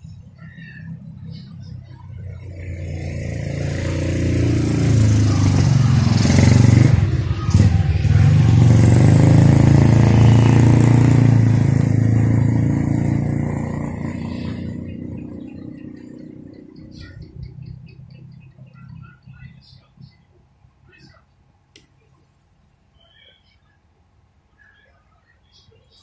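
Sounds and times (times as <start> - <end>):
vehicle engine passing by: 0.0 - 19.6.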